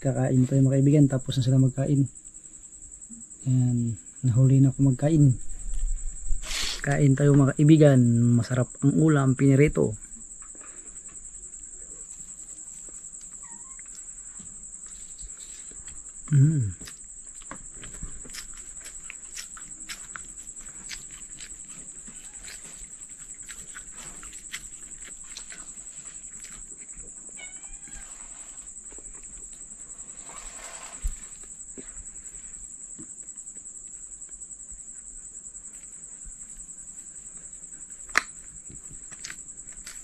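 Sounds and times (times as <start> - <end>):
fingers picking food on plate: 16.8 - 26.7.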